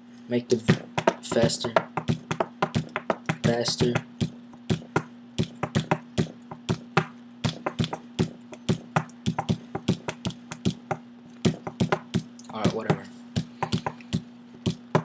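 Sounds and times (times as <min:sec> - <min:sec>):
steady low hum: 0:00.0 - 0:15.0
quick uneven percussive taps: 0:00.6 - 0:15.0.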